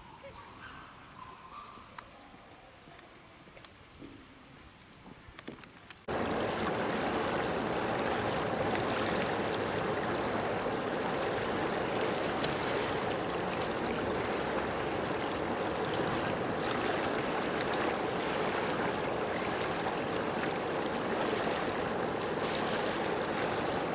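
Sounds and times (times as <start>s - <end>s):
running water rushing: 6.0s - 23.9s.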